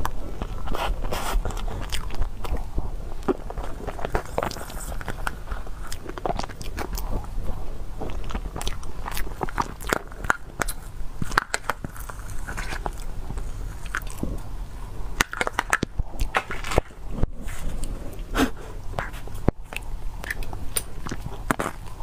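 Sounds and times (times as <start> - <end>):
mouth smacking and chewing: 0.0 - 22.0.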